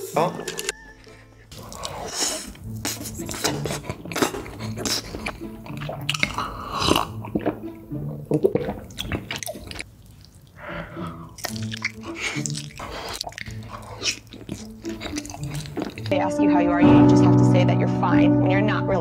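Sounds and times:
wet chewing: 0.0 - 16.2
biting into a macaron: 0.4 - 16.1
gulping milk: 1.5 - 16.1
mouth clicks: 1.5 - 16.1.

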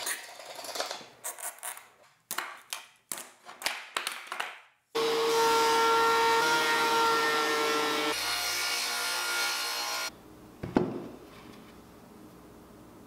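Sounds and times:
thickness planer whining: 5.0 - 10.1.

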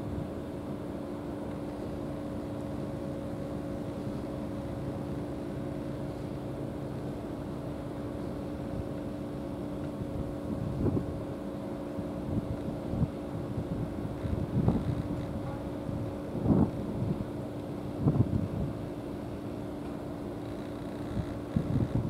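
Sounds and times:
wind gust on microphone: 12.3 - 17.2, 18.0 - 18.8, 21.1 - 22.0
mechanical drone: 12.3 - 22.0.

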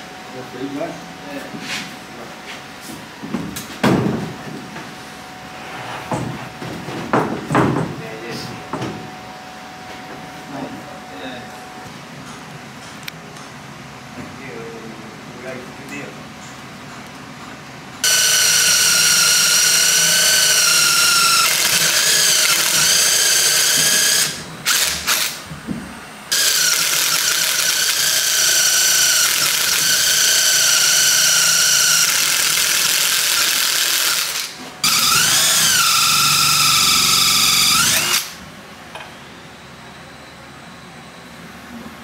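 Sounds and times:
cordless drill boring into wood: 18.0 - 25.4, 26.3 - 38.4.

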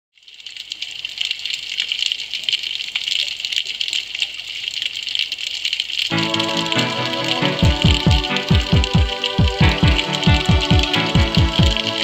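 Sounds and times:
crackling underwater hiss: 0.7 - 12.0
music: 6.1 - 12.0.

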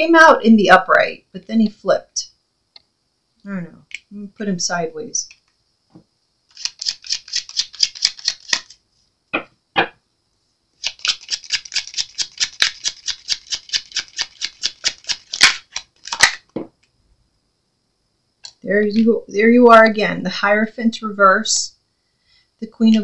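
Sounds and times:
cards being shuffled: 6.5 - 8.8, 10.8 - 16.6.

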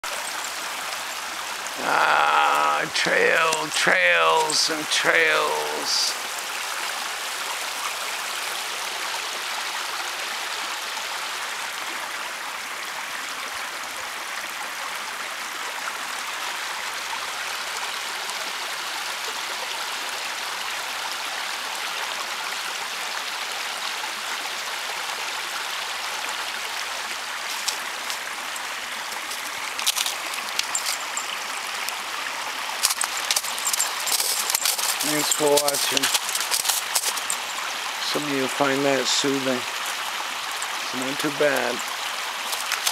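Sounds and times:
water rushing over rocks: 0.0 - 42.9.

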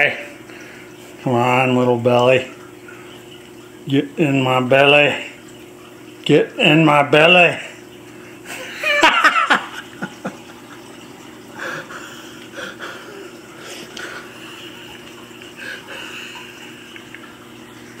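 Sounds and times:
steady low hum: 0.0 - 18.0
person laughing: 8.5 - 10.8, 11.6 - 13.4.

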